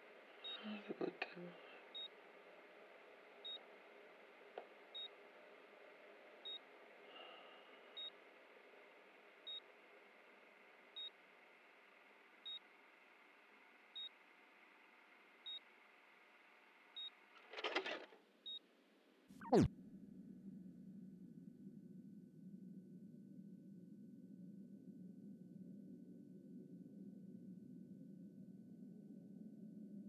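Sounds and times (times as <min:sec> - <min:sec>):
short high warning beeps: 0:19.4 - 0:19.7.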